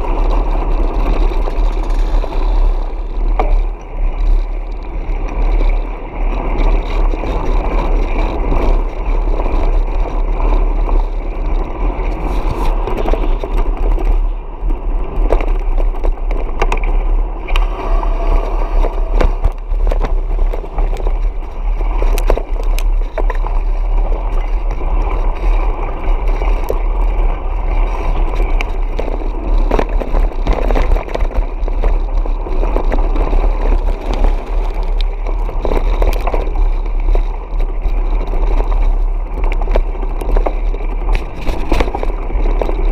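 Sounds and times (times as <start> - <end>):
motorcycle engine rumble: 0.0 - 42.9
tyres rattling over gravel: 0.0 - 42.9
wind noise: 0.0 - 42.9.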